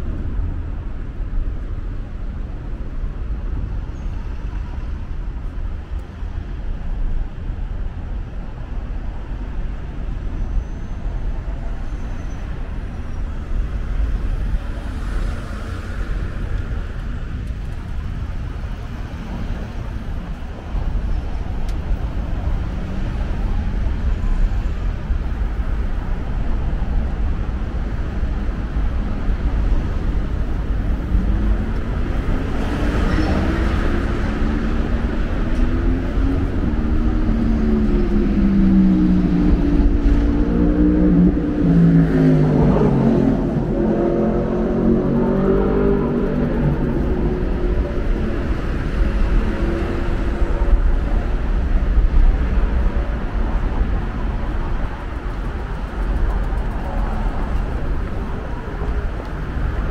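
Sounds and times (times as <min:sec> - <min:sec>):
low rumble of passing cars: 0:00.0 - 0:59.9
vehicle engine accelerating past: 0:32.6 - 0:50.5.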